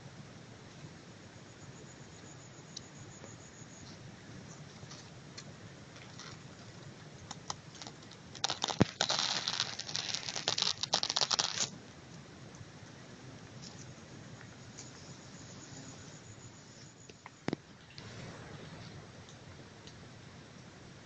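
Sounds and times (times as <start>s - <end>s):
dry leaves crackling and rustling: 6.0s - 11.8s.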